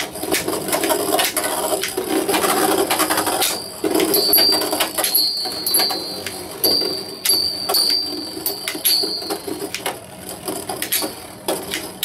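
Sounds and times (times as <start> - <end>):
whirr of tops spinning on plastic: 0.0 - 12.0
spinning tops clashing with metal clinks: 3.0 - 10.0
high metallic ringing: 3.1 - 9.9.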